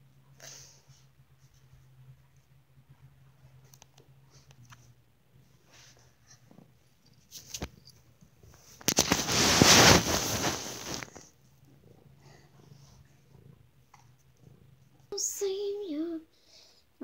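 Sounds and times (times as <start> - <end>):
rustling against microphone: 8.5 - 11.3.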